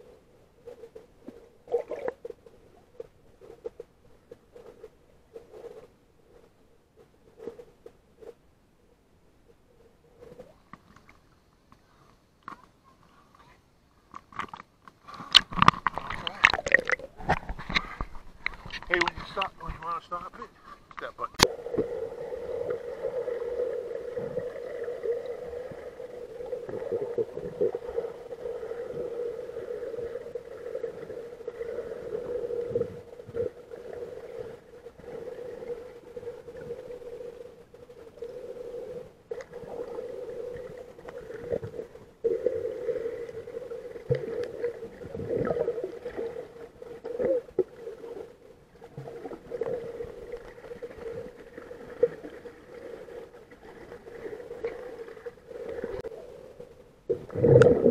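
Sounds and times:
underwater hum: 0:00.0 - 0:12.6, 0:14.1 - 0:57.9
water moving around camera case: 0:14.2 - 0:19.9.

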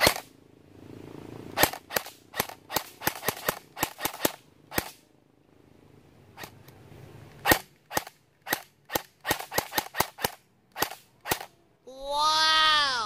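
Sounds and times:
airsoft rifle shots: 0:00.0 - 0:00.3, 0:01.5 - 0:05.0, 0:07.4 - 0:11.6
drawn-out pitched sound: 0:11.3 - 0:13.0.

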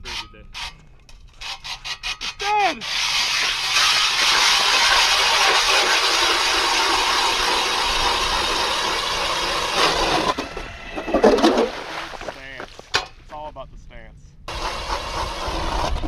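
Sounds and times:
short scraping burst: 0:01.4 - 0:12.9
ice auger grinding whir: 0:02.8 - 0:12.3, 0:14.5 - 0:16.0.

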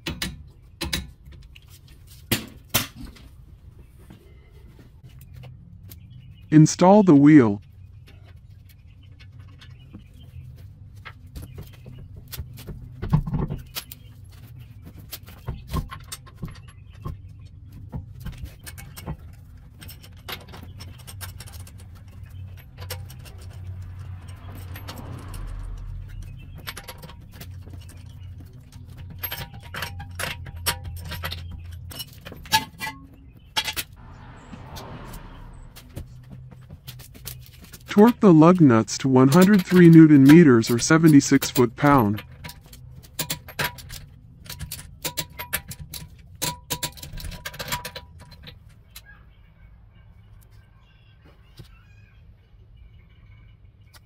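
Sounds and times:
metal clinking and clicking: 0:18.2 - 0:34.0, 0:39.2 - 0:49.0.

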